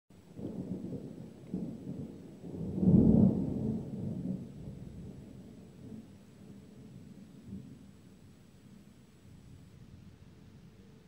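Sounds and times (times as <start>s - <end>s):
thunder rumbling: 0.2s - 8.0s.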